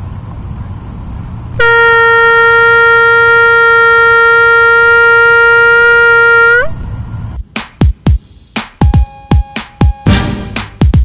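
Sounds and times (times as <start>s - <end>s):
homemade air horn blast: 1.6s - 6.8s, 10.0s - 10.8s.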